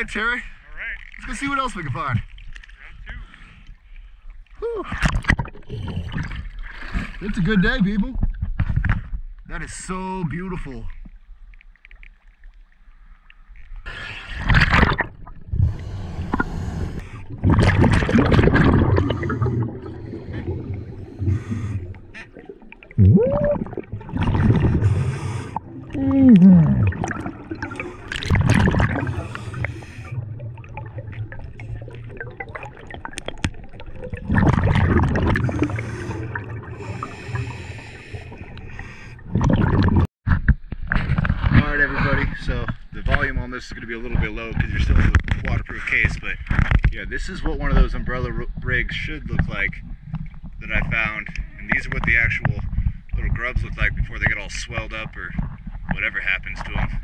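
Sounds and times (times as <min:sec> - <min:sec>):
exhaled bubbles rushing: 0:04.9 - 0:07.6, 0:13.8 - 0:40.1
diver breathing through regulator: 0:15.5 - 0:17.4, 0:18.9 - 0:22.5, 0:24.5 - 0:25.9, 0:29.0 - 0:30.3, 0:35.3 - 0:39.3.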